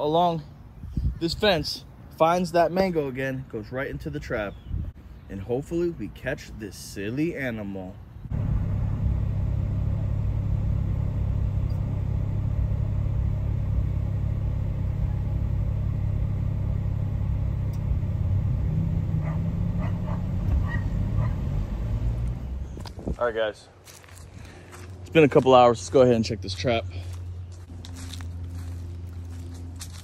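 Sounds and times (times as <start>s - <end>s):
car engine idling: 8.3s - 22.8s.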